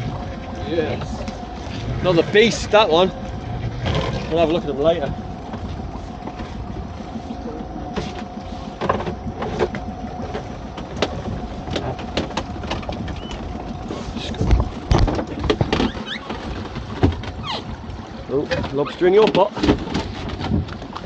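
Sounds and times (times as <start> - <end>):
boat motor running: 0.0 - 21.0
knocks and clatter of crab pots: 14.6 - 17.4, 18.5 - 20.9.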